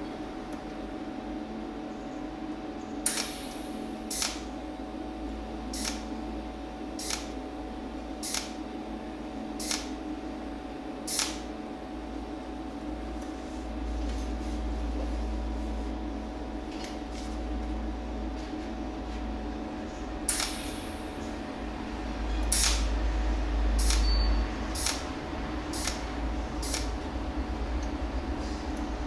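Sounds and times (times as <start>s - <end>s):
steady hum: 0.0s - 29.0s
welding torch zaps: 3.0s - 4.5s, 7.0s - 7.3s, 8.2s - 8.6s, 9.6s - 9.9s, 11.1s - 11.5s, 20.3s - 21.0s, 22.5s - 22.9s, 24.7s - 25.1s, 25.7s - 27.0s.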